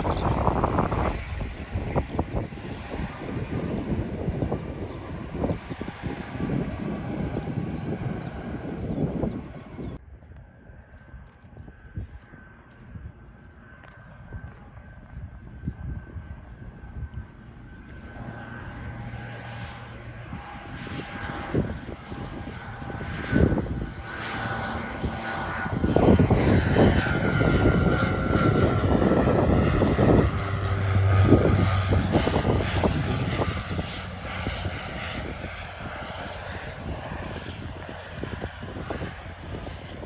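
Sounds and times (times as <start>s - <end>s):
aircraft engine roar: 0.0s - 40.0s
aircraft engine whine: 0.0s - 40.0s.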